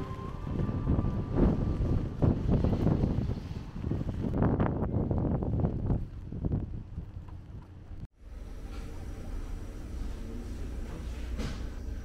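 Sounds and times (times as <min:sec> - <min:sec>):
wind buffeting microphone: 0:00.0 - 0:08.1.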